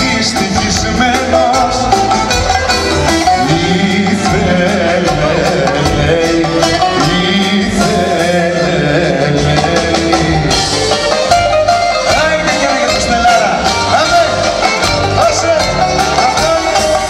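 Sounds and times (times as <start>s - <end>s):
live band playing: 0.0s - 17.0s
man singing amplified: 0.0s - 17.0s.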